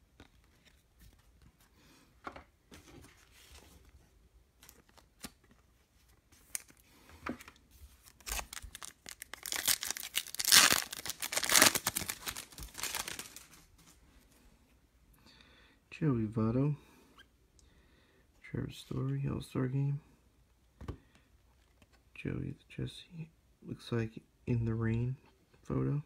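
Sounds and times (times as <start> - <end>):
foil wrapper tearing and crinkling: 8.1 - 13.5.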